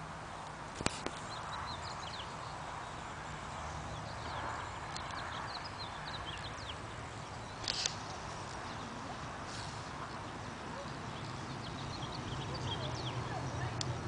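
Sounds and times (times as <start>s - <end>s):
steady outdoor hiss: 0.0s - 14.0s
small birds chirping: 0.8s - 14.0s
short rustle: 7.6s - 10.3s.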